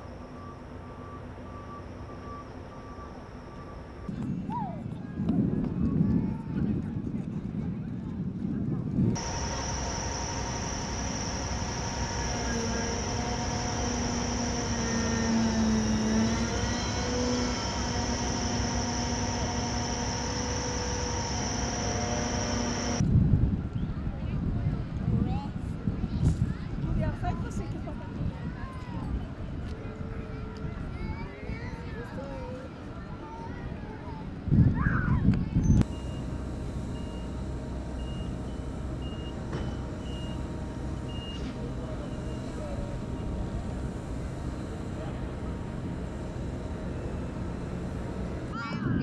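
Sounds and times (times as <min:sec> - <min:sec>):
reversing alarm beeping: 0:00.0 - 0:04.1, 0:09.2 - 0:23.0, 0:35.8 - 0:48.6
low hum tones: 0:00.0 - 0:04.2, 0:09.1 - 0:23.0, 0:35.7 - 0:49.0
turbine machinery whine: 0:00.0 - 0:04.2, 0:09.0 - 0:23.1, 0:35.7 - 0:49.0.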